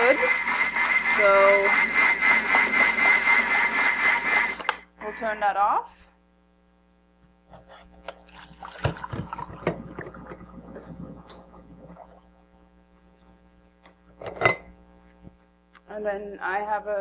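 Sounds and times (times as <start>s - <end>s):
water sloshing: 8.1s - 12.3s.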